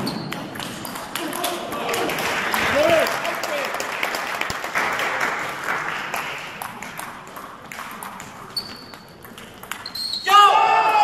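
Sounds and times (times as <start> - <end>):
small crowd applause: 1.2 - 6.7.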